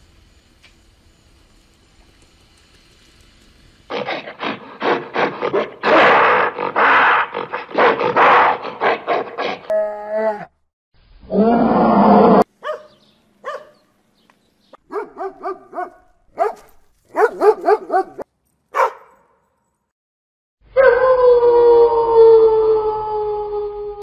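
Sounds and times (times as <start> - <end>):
young dog yipping and howling: 12.6 - 13.7, 20.8 - 24.0.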